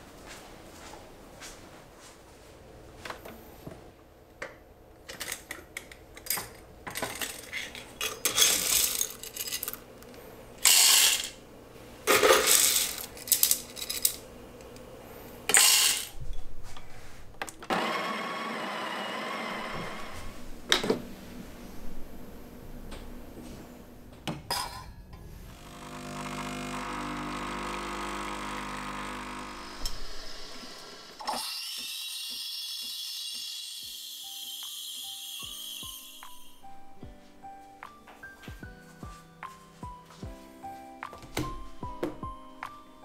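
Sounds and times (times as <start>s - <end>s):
coffee beans rattling into hopper: 7.1s - 9.8s, 10.6s - 11.4s, 12.1s - 14.2s, 15.5s - 16.2s
coffee grinder running: 10.6s - 11.4s, 12.1s - 13.6s, 15.5s - 16.2s, 17.7s - 20.2s, 25.5s - 36.2s.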